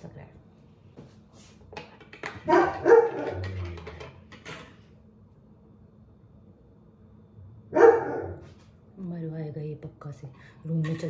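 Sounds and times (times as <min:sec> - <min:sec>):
dog barking: 0:02.5 - 0:03.4, 0:07.7 - 0:08.5.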